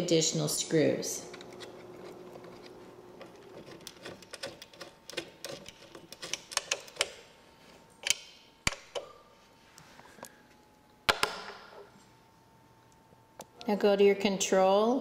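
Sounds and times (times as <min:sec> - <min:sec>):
screwdriver ticking and clicking: 0:03.6 - 0:07.2.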